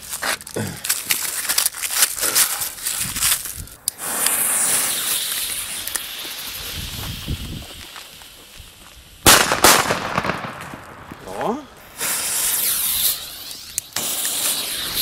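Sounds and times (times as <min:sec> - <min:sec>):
firecracker pack crinkling: 0:00.0 - 0:09.9
fuse hissing and spitting sparks: 0:02.1 - 0:09.4, 0:11.8 - 0:15.0.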